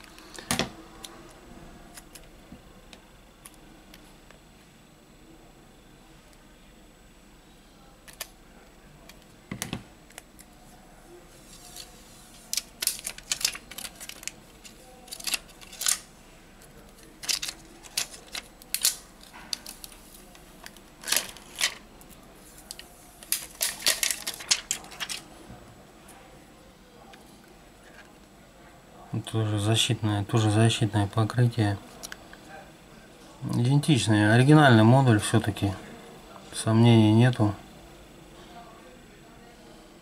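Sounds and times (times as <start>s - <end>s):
plastic film crackling: 11.6s - 16.1s, 16.7s - 25.3s.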